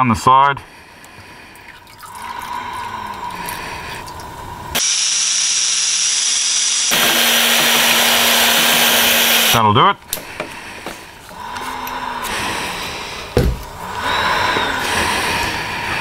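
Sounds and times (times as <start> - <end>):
cordless drill running: 4.8 - 9.6.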